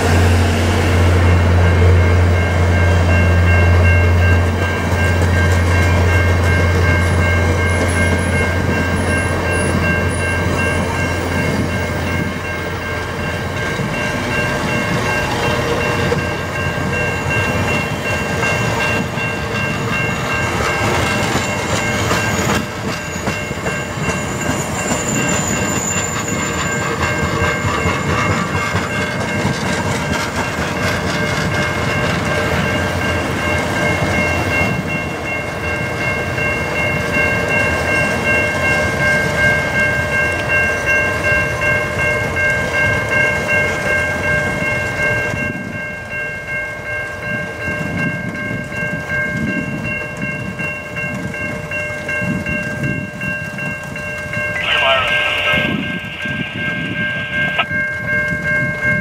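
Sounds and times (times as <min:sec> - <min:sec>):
level crossing bell ringing: 0:01.2 - 0:29.5, 0:30.4 - 0:59.0
train wheels clicking over rail joints: 0:03.5 - 0:34.2.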